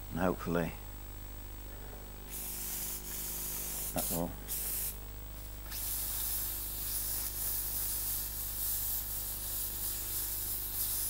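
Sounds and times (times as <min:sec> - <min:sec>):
low electrical hum: 0:00.0 - 0:11.0
steam gun hissing: 0:02.3 - 0:11.0.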